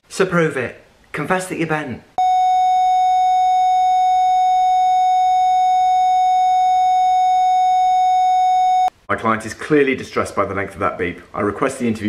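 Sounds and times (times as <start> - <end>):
long electronic beep: 2.2 - 8.9.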